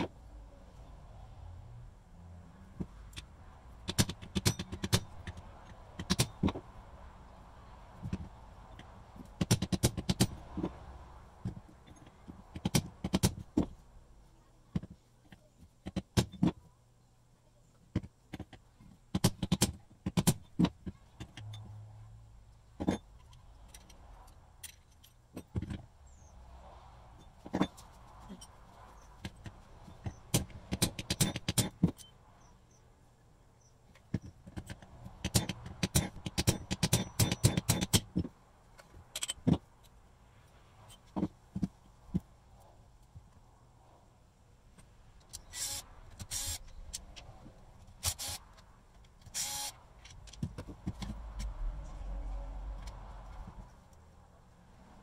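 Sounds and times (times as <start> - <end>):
metal tools clicking and clinking: 22.8 - 25.8.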